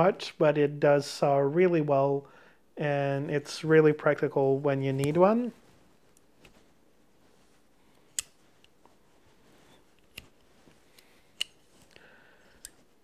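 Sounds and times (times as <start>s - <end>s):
metal tool clicks: 8.1s - 8.8s, 10.0s - 12.8s.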